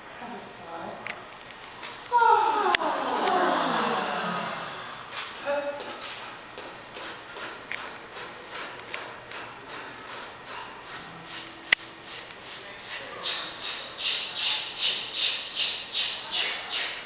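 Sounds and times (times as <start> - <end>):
rhythmic swishing hiss: 6.0 - 17.0.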